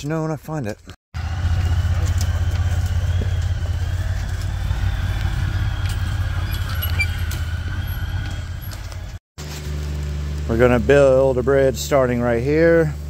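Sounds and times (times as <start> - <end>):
utility vehicle engine running: 1.2 - 13.0.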